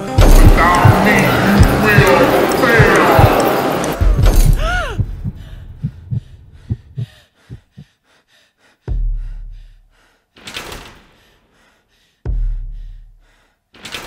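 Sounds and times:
soft heartbeat-like thumps: 0:00.2 - 0:02.2, 0:04.0 - 0:08.0, 0:08.8 - 0:10.0, 0:12.2 - 0:13.3.

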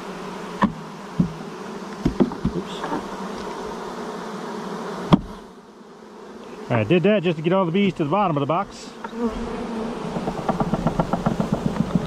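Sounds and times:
honeybees buzzing: 0:00.0 - 0:12.0
knocks on wooden box: 0:00.6 - 0:01.4, 0:02.0 - 0:03.0, 0:05.1 - 0:05.3, 0:10.1 - 0:12.0.

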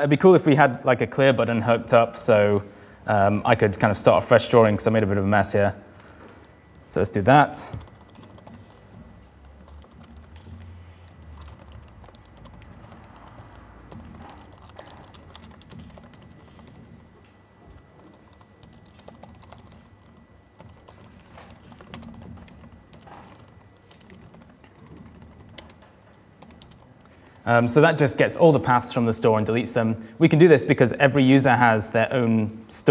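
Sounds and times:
laptop keyboard typing: 0:07.6 - 0:27.5.

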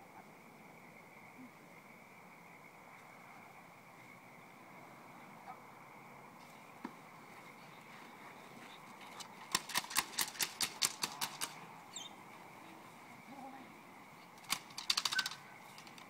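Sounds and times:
clatter stick sharp clacks: 0:09.5 - 0:11.6, 0:14.4 - 0:16.0.

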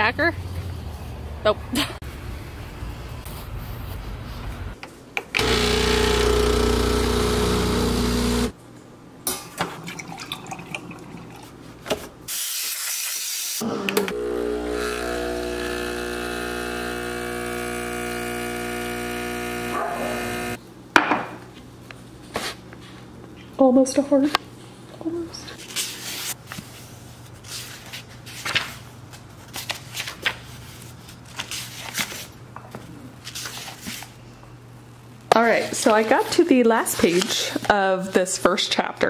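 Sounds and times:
espresso machine motor hum: 0:05.4 - 0:08.5, 0:13.6 - 0:20.6
espresso pump hum: 0:05.4 - 0:08.5, 0:13.6 - 0:20.6.

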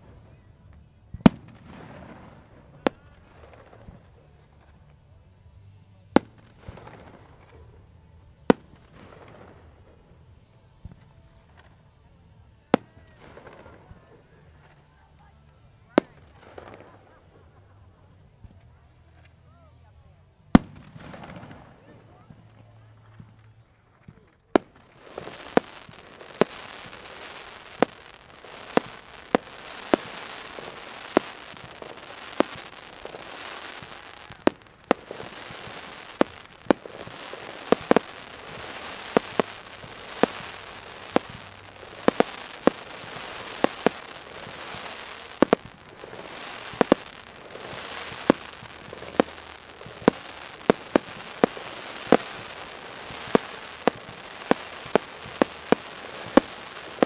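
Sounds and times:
continuous hiss: 0:00.0 - 0:57.0
firework shell bursts: 0:24.6 - 0:57.0.

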